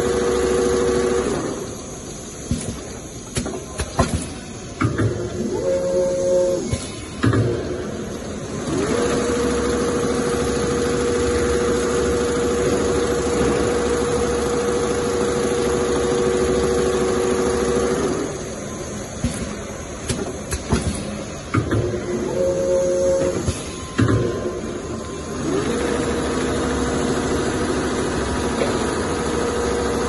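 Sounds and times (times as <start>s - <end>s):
sewing machine motors humming: 0.0s - 2.0s, 7.8s - 20.6s, 24.4s - 30.0s.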